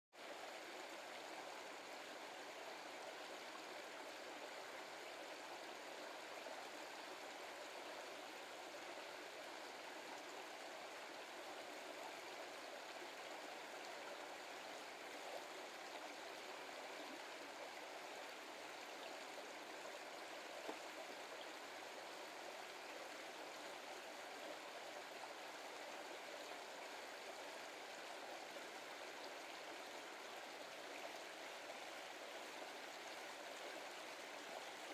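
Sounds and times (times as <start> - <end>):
brook flowing water: 0.1 - 34.9.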